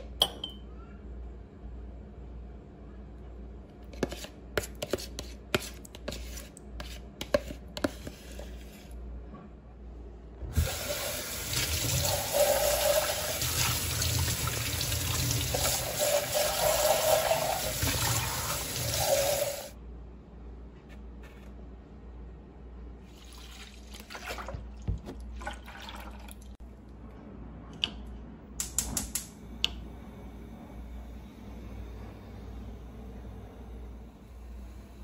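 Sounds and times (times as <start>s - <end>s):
tap water running into tub: 10.6s - 19.7s.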